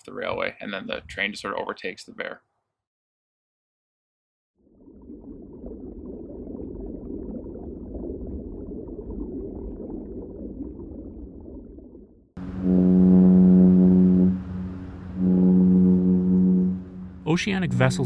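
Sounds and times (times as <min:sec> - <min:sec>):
underwater bubbling wash: 0:04.6 - 0:17.6
deep ship's horn blast: 0:12.4 - 0:18.0.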